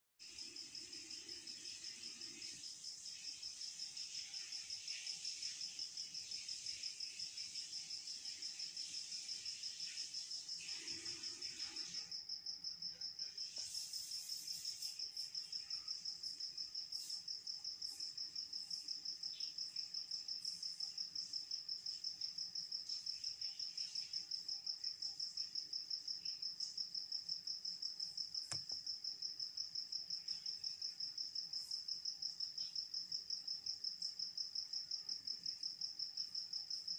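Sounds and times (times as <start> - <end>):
click: 28.4 - 28.8.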